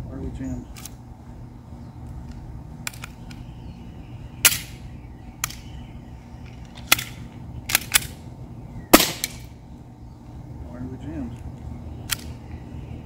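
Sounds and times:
airsoft pistol cracks and clicks: 2.2s - 3.4s, 4.4s - 4.8s, 5.4s - 5.7s, 6.6s - 8.2s, 9.0s - 9.5s, 12.0s - 12.4s.

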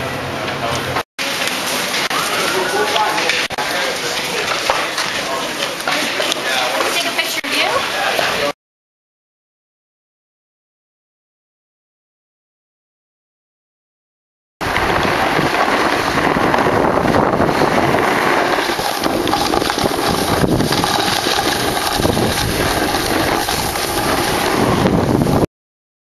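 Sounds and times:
skis sliding on snow: 14.6s - 25.4s
wind rushing over microphone: 14.6s - 25.5s.

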